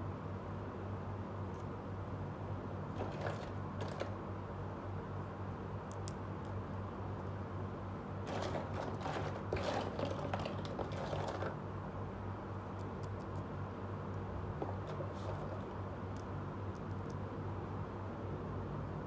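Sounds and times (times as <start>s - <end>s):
steady low hum: 0.0s - 19.0s
plastic toys clicking and rustling: 3.0s - 4.2s, 8.3s - 11.6s.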